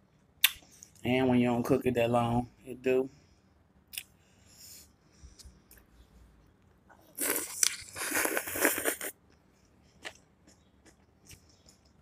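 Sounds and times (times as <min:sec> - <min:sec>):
crunching cucumber: 0:07.2 - 0:09.2.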